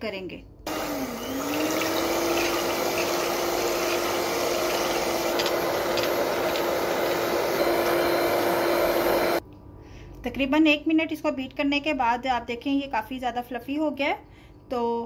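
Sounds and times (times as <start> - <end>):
electric hand mixer whining: 0.7 - 9.4.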